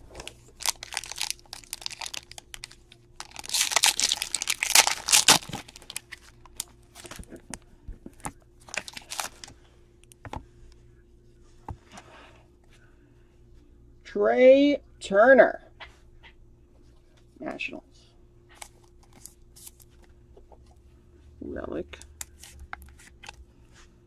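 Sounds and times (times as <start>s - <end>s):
foil wrapper crinkling and tearing: 0.2s - 7.4s, 8.6s - 9.5s.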